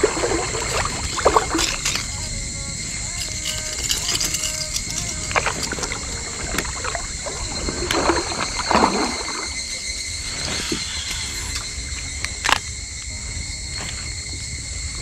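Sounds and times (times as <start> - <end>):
water sloshing and splashing: 0.0 - 13.1
insects droning: 0.0 - 15.0.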